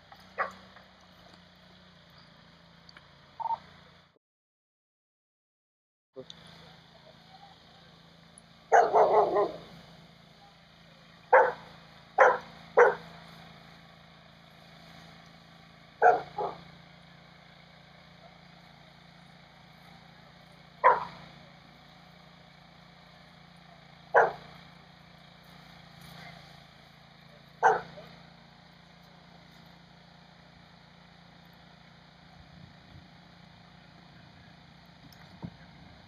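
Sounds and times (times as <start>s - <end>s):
dog barking: 0.4s - 0.6s, 8.7s - 9.6s, 11.3s - 13.1s, 16.0s - 16.6s, 20.8s - 21.2s, 24.1s - 24.4s, 27.6s - 28.0s.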